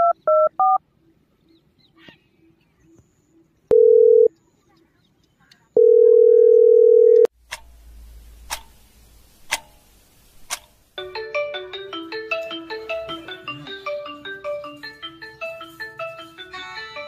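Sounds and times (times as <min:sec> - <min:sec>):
telephone ringback tone: 0:03.7 - 0:04.3, 0:05.8 - 0:07.3
marimba mobile ringtone: 0:11.0 - 0:17.0.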